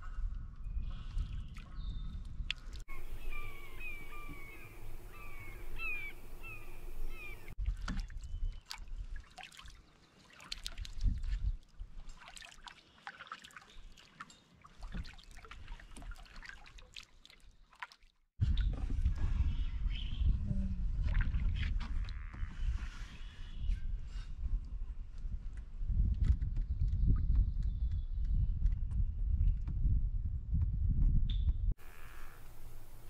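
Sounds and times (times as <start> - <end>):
bird calling harshly: 2.9 - 7.6.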